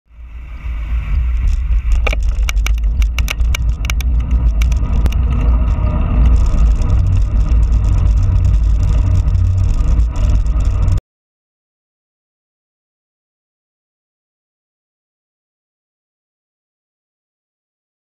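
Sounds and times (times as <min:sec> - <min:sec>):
wind buffeting microphone: 0:00.2 - 0:11.0
sharp clicks and rattles: 0:01.4 - 0:11.0.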